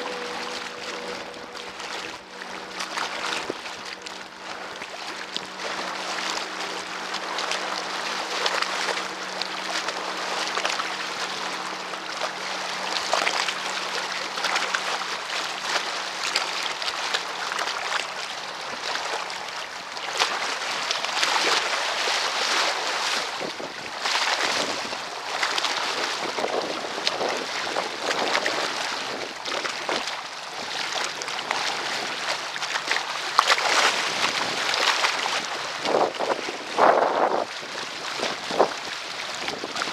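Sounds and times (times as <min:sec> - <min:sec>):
lake water lapping and splashing: 0:00.0 - 0:39.9
wind rushing over microphone: 0:33.9 - 0:39.9.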